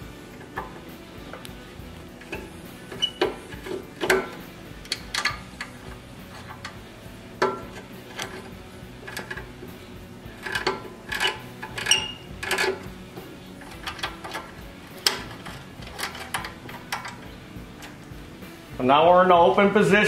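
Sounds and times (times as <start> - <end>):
hand tool clicking on metal: 2.2 - 9.7, 10.3 - 12.9, 13.6 - 18.1.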